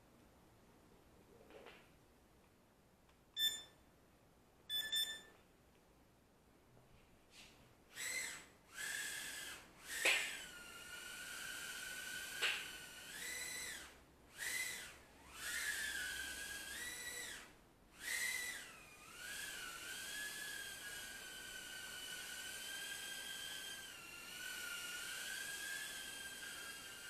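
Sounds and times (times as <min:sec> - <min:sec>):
quadcopter motors whining: 0:08.0 - 0:27.0.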